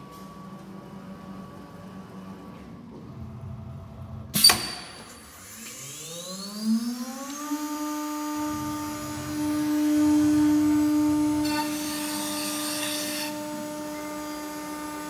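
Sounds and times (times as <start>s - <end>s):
router spindle whine: 4.4s - 15.0s.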